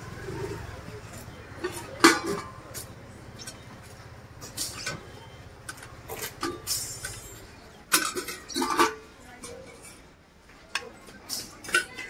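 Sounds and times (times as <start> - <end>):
steel plates and utensils clinking: 1.6 - 3.6, 5.7 - 10.1, 10.8 - 12.0.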